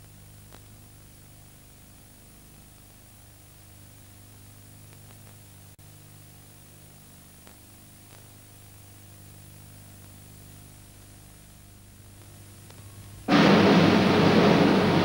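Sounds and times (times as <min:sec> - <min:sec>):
low electrical hum: 0:00.0 - 0:15.0
tape hiss: 0:00.0 - 0:15.0
faint clicks: 0:00.5 - 0:00.7, 0:07.4 - 0:08.4.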